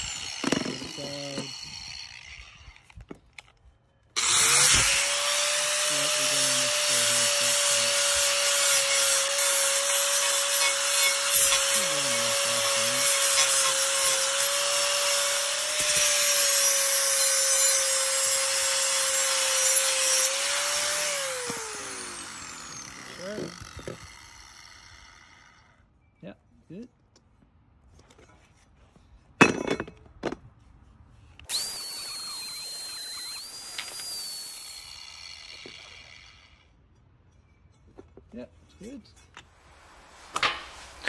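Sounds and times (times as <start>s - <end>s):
angle grinder motor whine: 0.0s - 2.9s, 4.2s - 25.6s, 31.5s - 36.7s
grinding disc on steel blade: 4.2s - 24.8s, 31.5s - 36.7s, 40.2s - 41.0s.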